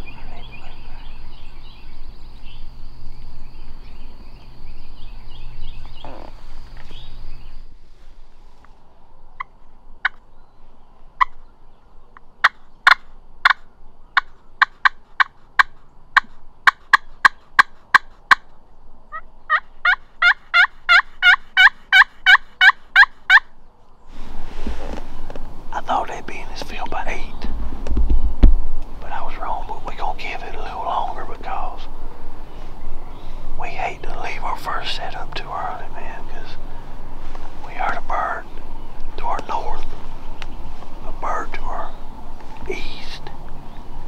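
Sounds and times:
turkey call clucks: 12.4 - 18.5, 19.1 - 23.5
turkey call yelps: 19.1 - 23.5.

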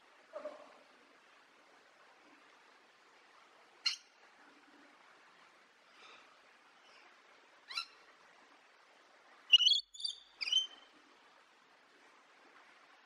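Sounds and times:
lorikeet calling: 9.5 - 10.8.

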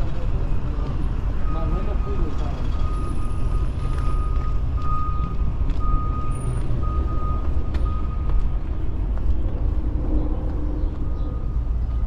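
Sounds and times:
reversing alarm beeping: 1.4 - 8.4
low rumble: 6.8 - 11.5.

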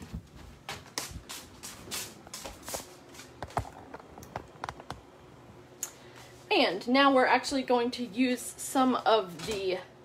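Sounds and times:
footsteps: 0.0 - 4.9.

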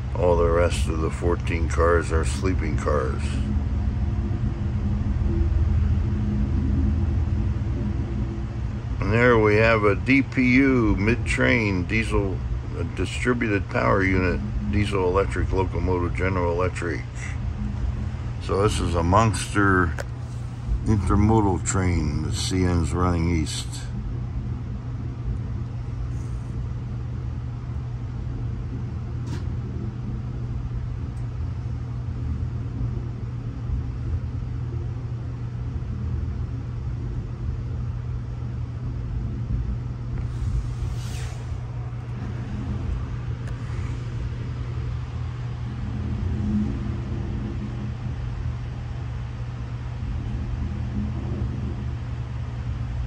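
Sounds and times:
short hiss: 40.3 - 41.6.

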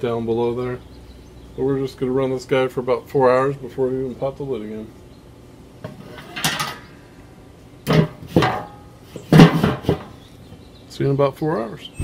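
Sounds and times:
metal grill lid clunks: 5.8 - 6.9, 7.8 - 10.2.

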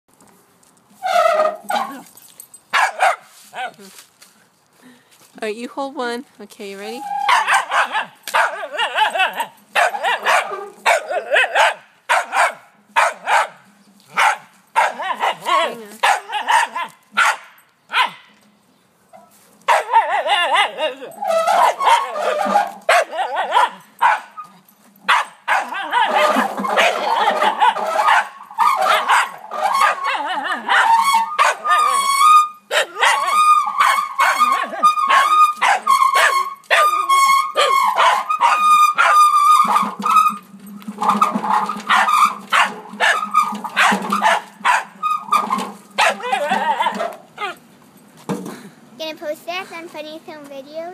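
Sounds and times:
small dog barking: 2.8 - 3.8, 7.2 - 18.3, 19.7 - 20.9, 21.5 - 24.4, 25.1 - 32.0, 32.7 - 39.2, 41.9 - 43.2, 46.0 - 47.6.

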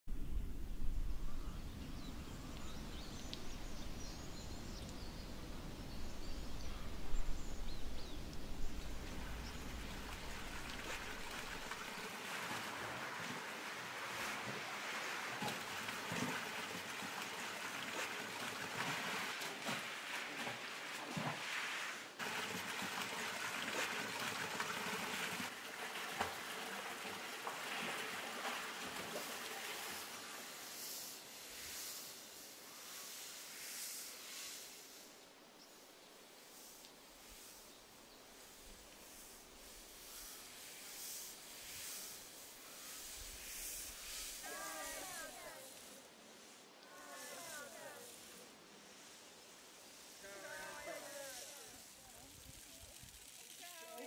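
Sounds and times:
water splashing through channel: 8.0 - 30.6, 43.8 - 45.9
water gushing from metal pipe: 8.8 - 30.5.

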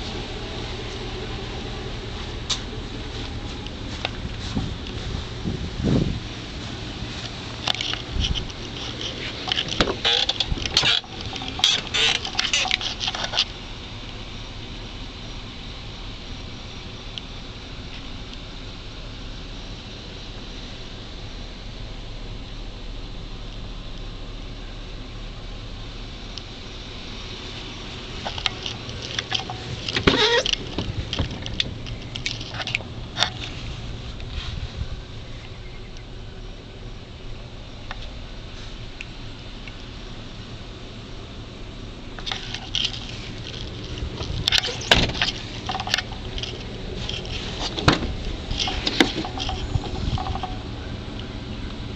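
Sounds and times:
steady low hum: 0.0 - 51.9
car door clicks and rattles: 7.7 - 13.5, 28.2 - 33.4, 42.2 - 50.7.

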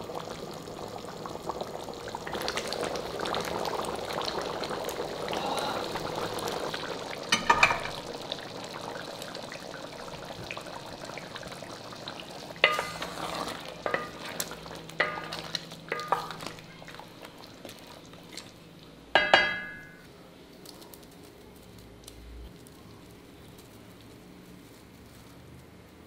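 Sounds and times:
gravy sizzling: 0.0 - 26.0
spatula clanging on pot: 7.3 - 8.0, 12.6 - 14.3, 15.0 - 16.5, 19.2 - 20.0
spatula scraping metal pot: 12.6 - 14.3.

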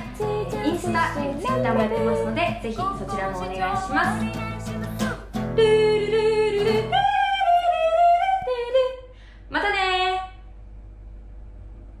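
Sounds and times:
guitar music: 0.0 - 7.0
woman singing wordless notes: 0.0 - 9.1.

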